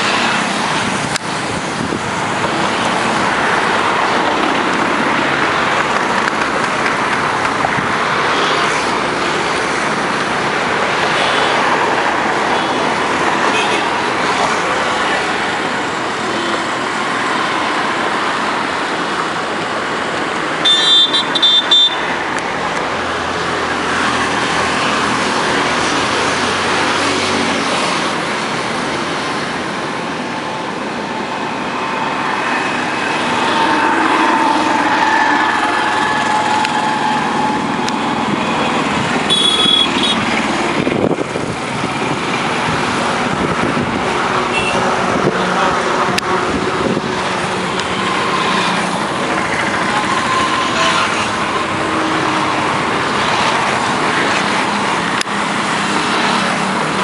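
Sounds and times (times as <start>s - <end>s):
road traffic passing: 0.0s - 57.0s
car horn toot: 20.6s - 22.0s, 39.3s - 40.2s, 44.5s - 44.8s.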